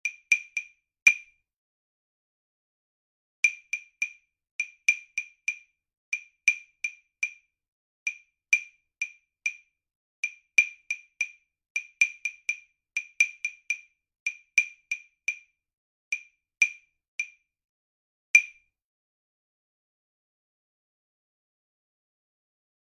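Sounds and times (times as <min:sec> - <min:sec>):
wood block clicks: 0:10.2 - 0:15.5, 0:16.1 - 0:17.4, 0:18.4 - 0:18.6.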